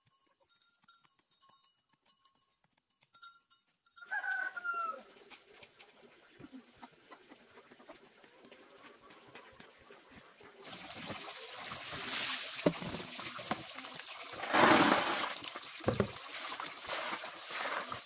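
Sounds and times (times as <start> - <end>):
water splashing into plastic basins: 9.7 - 18.0.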